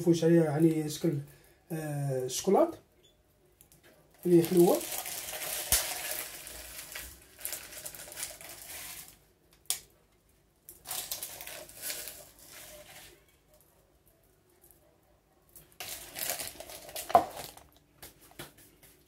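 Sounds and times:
plastic container crinkling: 4.2s - 9.2s, 10.7s - 13.3s, 15.6s - 18.5s.

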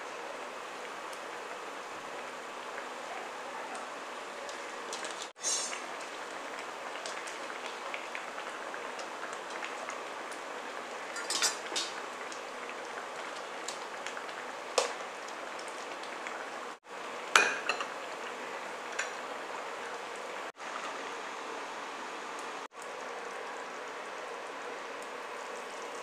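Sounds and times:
curry bubbling in a pan: 0.5s - 26.0s
metal spoon clinking on pan: 17.4s - 17.9s.

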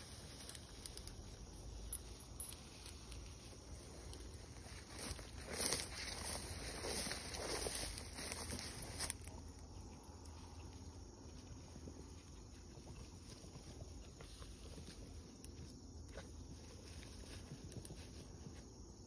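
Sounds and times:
footsteps through rustling weeds: 2.9s - 9.4s.

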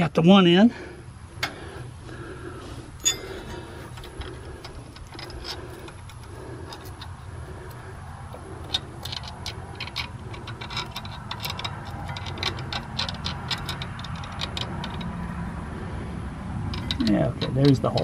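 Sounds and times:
steady low hum: 0.0s - 18.0s
metal tools clicking and clinking: 3.0s - 15.2s, 16.7s - 18.0s.

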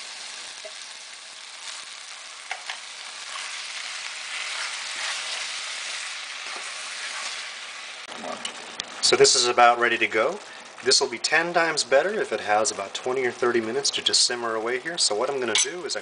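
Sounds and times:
food sizzling in a pan: 0.0s - 16.0s
wooden spoon stirring: 3.3s - 7.5s.

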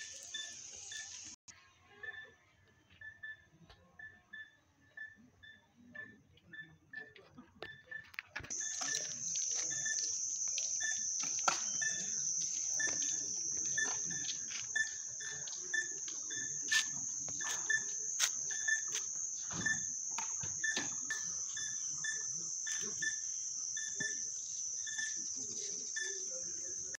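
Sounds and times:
high-pitched insect buzz: 0.0s - 1.4s, 8.5s - 26.9s.

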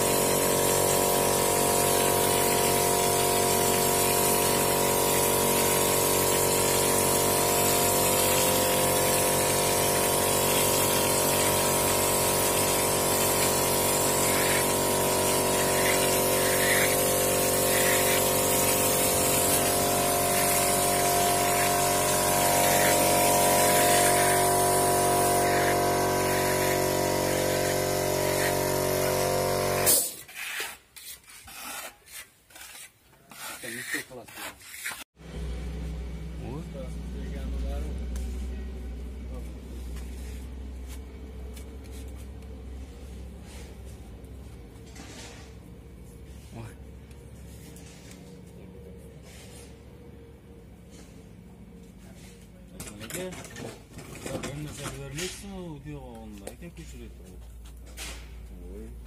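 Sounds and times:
compressor humming: 0.0s - 30.0s, 35.2s - 59.0s
spray gun hissing: 0.0s - 30.0s
trowel scraping plaster: 12.5s - 24.3s, 29.8s - 35.1s.

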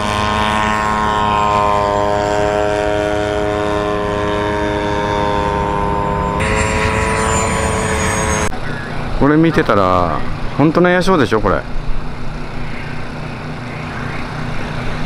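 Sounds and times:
model airplane engine passing: 0.0s - 8.9s.

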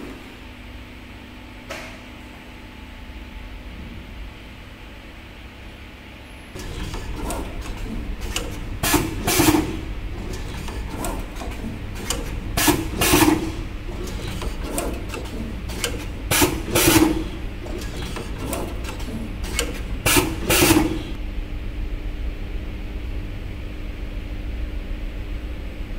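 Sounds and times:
machine mechanical hum: 0.0s - 25.9s
machine clack and hiss: 6.6s - 21.2s.

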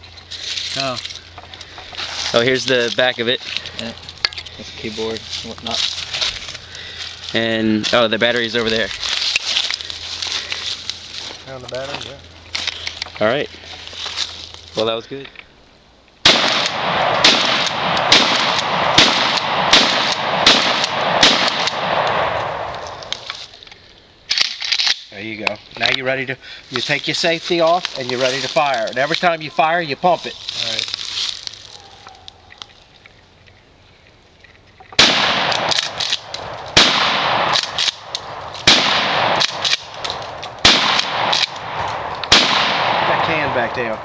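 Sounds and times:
shotgun shots: 16.2s - 23.2s, 35.0s - 44.0s.

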